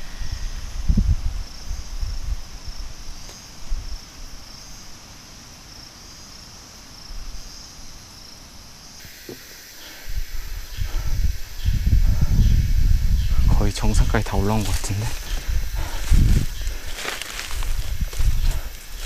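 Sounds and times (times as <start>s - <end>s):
insects chirping: 0.0s - 19.0s
low rumbling on microphone: 10.1s - 19.0s.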